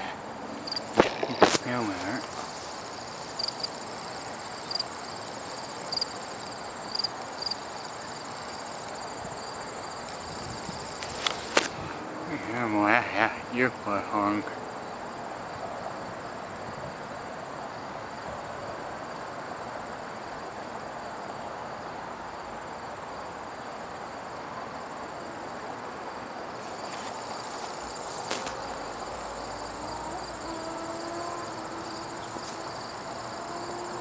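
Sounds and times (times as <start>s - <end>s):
insects trilling: 0.0s - 16.4s, 26.5s - 34.0s
faint steady hum: 0.0s - 34.0s
outdoor background noise: 0.0s - 34.0s.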